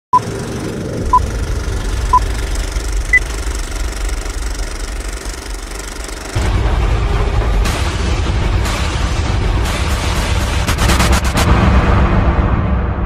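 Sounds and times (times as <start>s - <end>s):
film projector clattering rumble: 0.2s - 6.8s
music: 6.4s - 13.0s.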